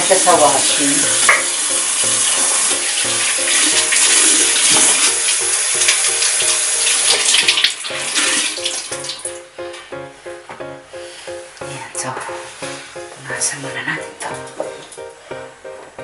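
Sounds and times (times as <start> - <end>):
dishes being washed: 0.0 - 9.4
tap running into sink: 1.2 - 1.7, 3.5 - 9.2.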